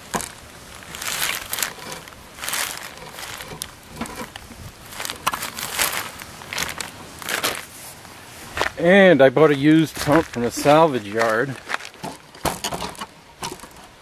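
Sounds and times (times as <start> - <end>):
plastic bag crinkling: 0.0 - 8.0, 9.5 - 12.3.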